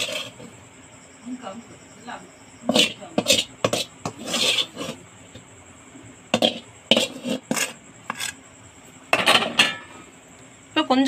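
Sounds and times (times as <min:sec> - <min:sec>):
metal spoon scraping steel plate: 0:00.0 - 0:00.5, 0:02.6 - 0:05.0, 0:06.3 - 0:08.4.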